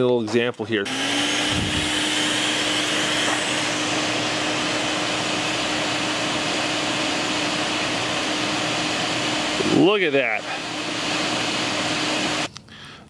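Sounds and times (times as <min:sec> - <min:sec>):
shop vac blowing air: 0:00.0 - 0:12.5.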